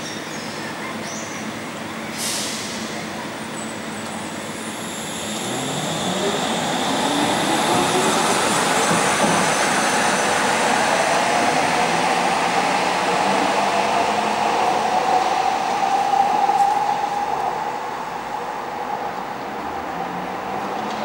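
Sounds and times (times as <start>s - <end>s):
wheels rumbling on rails: 2.8s - 21.0s
train motor whine rising: 4.2s - 19.5s.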